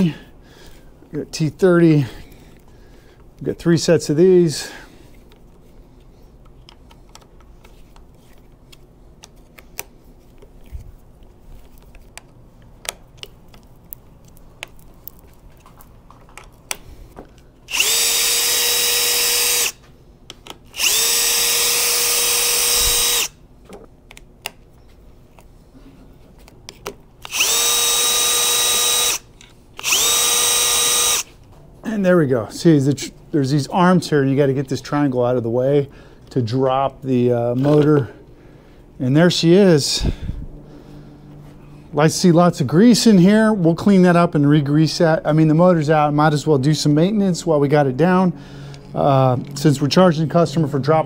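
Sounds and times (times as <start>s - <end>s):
electric driver whining: 17.7s - 19.8s, 20.7s - 23.4s, 27.2s - 31.3s.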